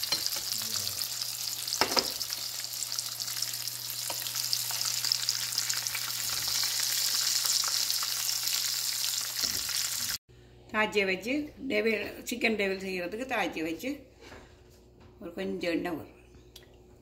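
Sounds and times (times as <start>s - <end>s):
chicken sizzling in oil: 0.0s - 10.2s.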